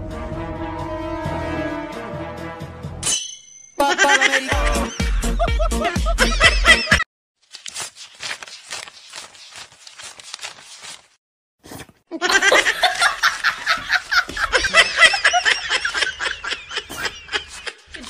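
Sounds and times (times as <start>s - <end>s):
person snickering laughter: 3.9s - 7.0s, 12.2s - 18.0s.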